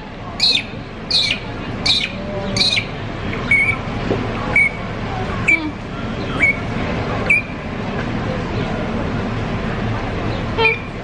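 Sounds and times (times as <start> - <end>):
low background rumble: 0.0 - 11.0
bird calling: 0.4 - 3.9, 4.5 - 4.8, 5.4 - 6.7.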